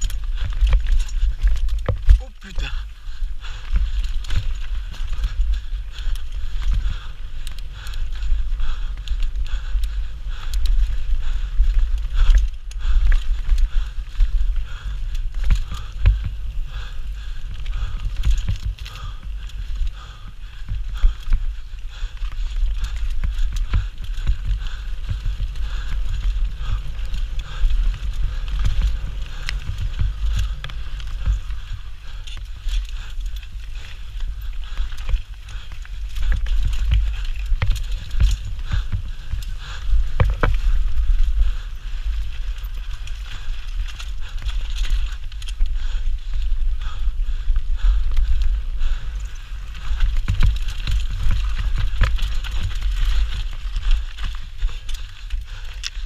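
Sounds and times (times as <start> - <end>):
bike rattling over roots: 0.0 - 56.0
wind rumble on microphone: 0.0 - 56.0.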